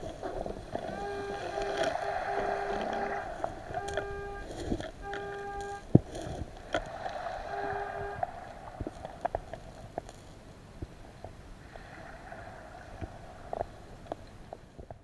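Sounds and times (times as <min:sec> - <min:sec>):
metal detector beep: 0:00.8 - 0:05.9, 0:07.5 - 0:08.3.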